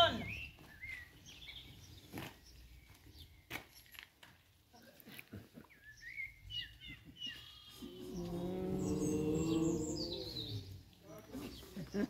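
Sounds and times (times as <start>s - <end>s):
long drawn-out bird call: 7.2s - 10.8s.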